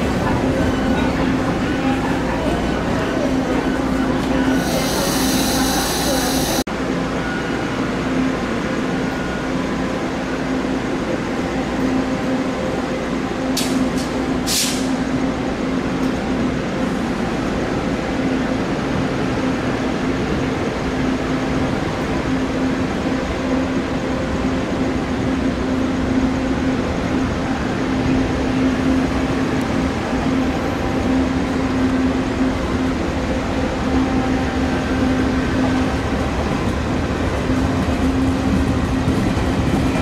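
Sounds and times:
train cars rolling on rails: 0.0 - 40.0
air hisses: 4.6 - 6.7.

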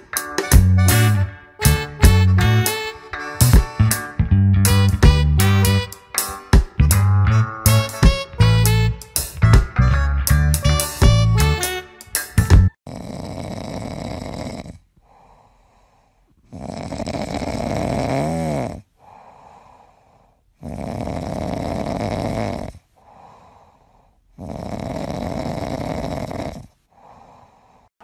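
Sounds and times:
pet snoring: 12.9 - 15.4, 16.4 - 19.6, 20.6 - 22.9, 24.3 - 26.9
soft breaths: 14.1 - 16.8, 18.3 - 22.0, 22.6 - 24.7, 26.0 - 28.0
whistling snore: 20.6 - 22.8, 24.4 - 26.8.

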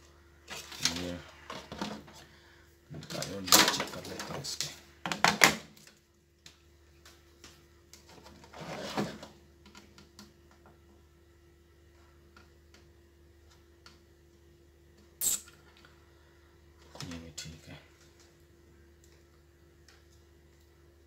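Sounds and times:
low steady hum: 0.0 - 21.0
short sharp scrape: 15.2 - 15.5.

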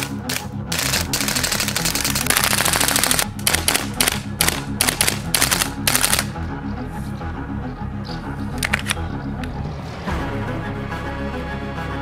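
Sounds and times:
airsoft rifle firing: 0.0 - 6.4.

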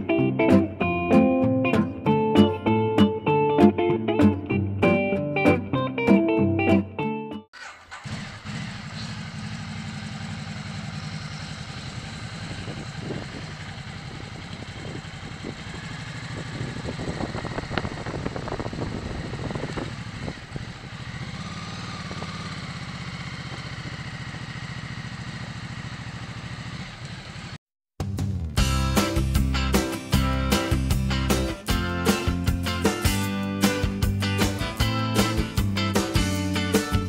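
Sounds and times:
motorcycle engine at low revs: 7.6 - 37.0.

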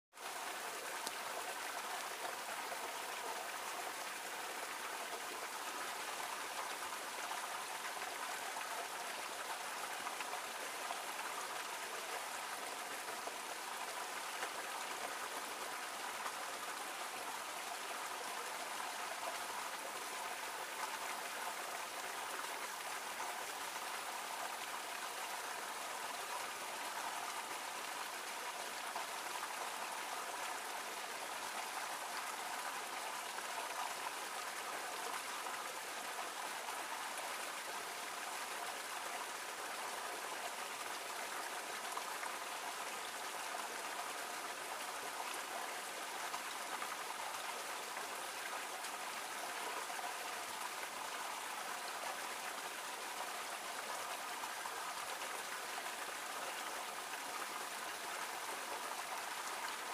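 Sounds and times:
small waterfall splashing: 0.1 - 59.9.

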